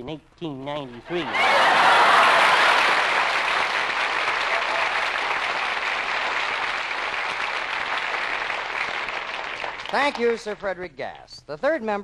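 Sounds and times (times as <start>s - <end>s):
studio audience applauding: 1.2s - 10.8s.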